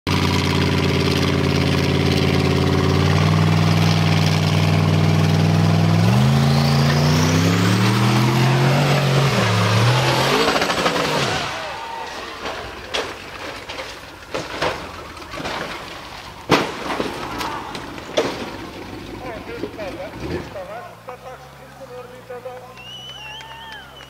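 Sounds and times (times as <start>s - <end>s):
high turbo whine: 0.1s - 12.0s
buggy engine revving: 0.1s - 24.0s.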